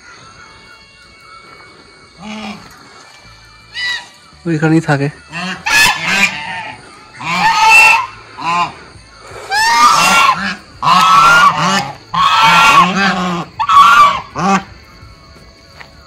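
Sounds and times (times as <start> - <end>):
geese honking: 2.2 - 2.7, 3.7 - 4.2, 5.1 - 14.8.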